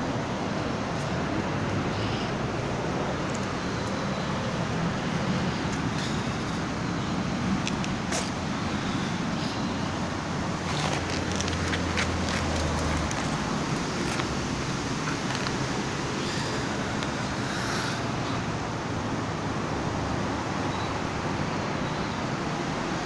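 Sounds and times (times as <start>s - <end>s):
faint clicks and rustles: 10.6s - 15.8s.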